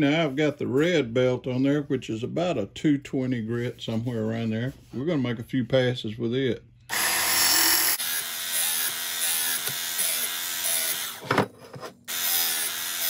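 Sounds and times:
belt sharpener grinding hum: 0:06.9 - 0:13.0.

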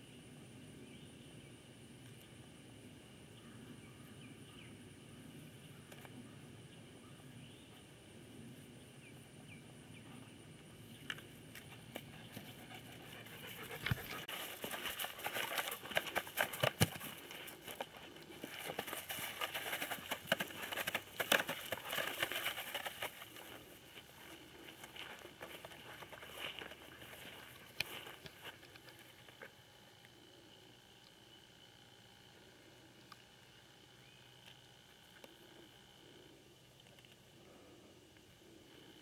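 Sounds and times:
dry grass rustling: 0:12.1 - 0:29.6.

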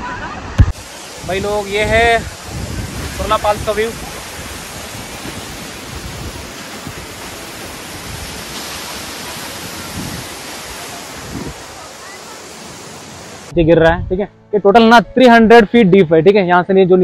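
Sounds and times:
waterfall rushing: 0:00.0 - 0:13.6.

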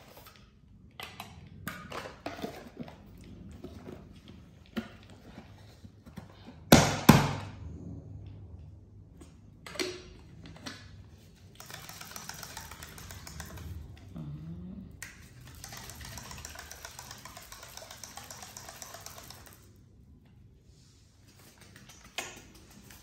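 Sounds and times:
plastic bottle being shaken: 0:11.2 - 0:14.1, 0:15.0 - 0:19.8
low vocal sound: 0:13.9 - 0:15.2.

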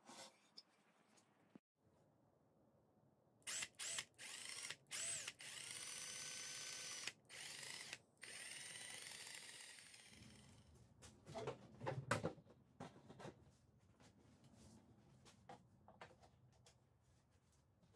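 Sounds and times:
cordless drill motor whining: 0:03.5 - 0:10.5.

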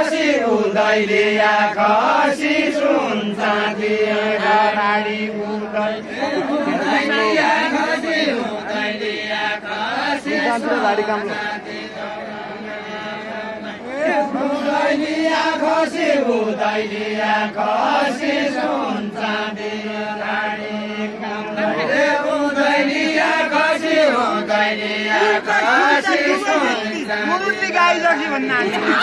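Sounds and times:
person singing folk song: 0:00.0 - 0:08.8.

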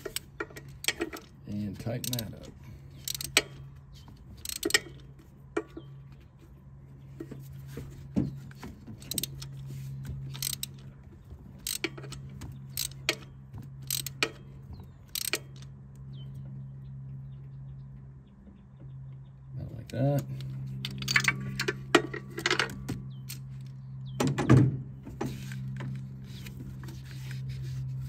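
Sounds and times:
ratchet wrench clicking: 0:00.0 - 0:03.6, 0:04.4 - 0:05.1, 0:09.0 - 0:09.6, 0:10.3 - 0:10.8, 0:11.6 - 0:14.5, 0:15.1 - 0:15.7.

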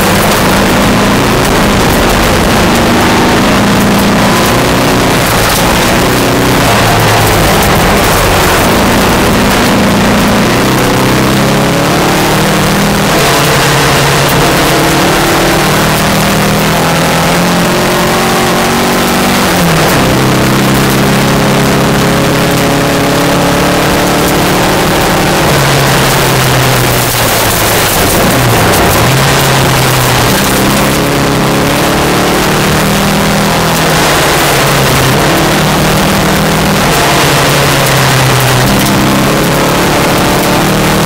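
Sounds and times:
car engine under hard load: 0:00.0 - 0:41.0
tyres on gravel rushing: 0:25.2 - 0:30.9.

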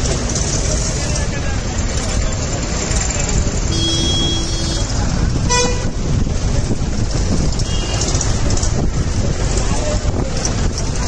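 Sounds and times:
tractor engines rumbling: 0:00.0 - 0:11.0
vehicle horn: 0:03.7 - 0:04.9, 0:05.5 - 0:05.9, 0:07.6 - 0:08.0.

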